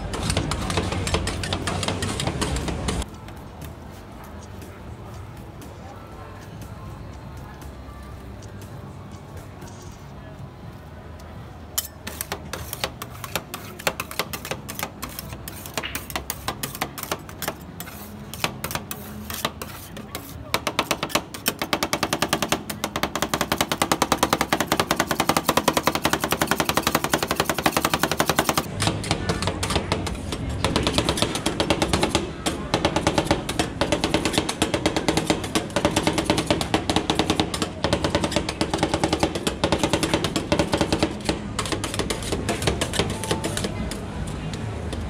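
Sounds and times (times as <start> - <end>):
metal spatulas scraping cold plate: 11.8 - 21.7.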